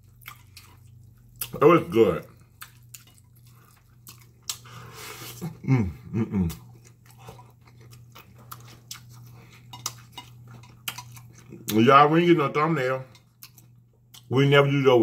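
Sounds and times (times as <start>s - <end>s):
wet chewing and lip-smacking: 0.0s - 1.6s, 2.2s - 5.5s, 6.5s - 11.8s, 13.1s - 14.3s.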